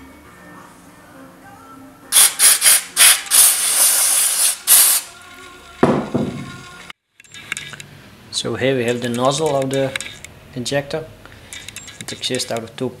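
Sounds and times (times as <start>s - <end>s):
hissing spray bursts: 2.1s - 5.1s.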